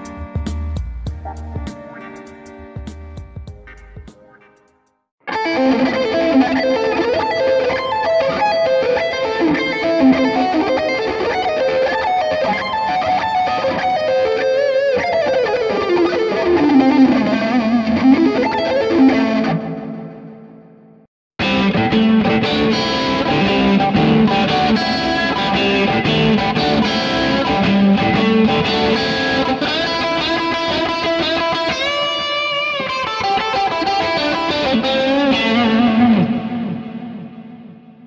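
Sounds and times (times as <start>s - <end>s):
distorted electric guitar lead: 0.0s - 38.0s.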